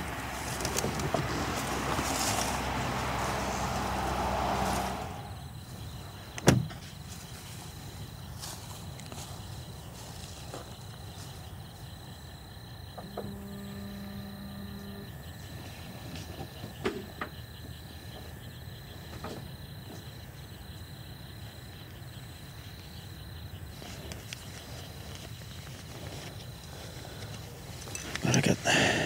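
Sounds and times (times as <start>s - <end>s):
low steady rumble: 0.0s - 6.1s
crickets trilling: 0.0s - 29.0s
low hum: 13.0s - 15.2s.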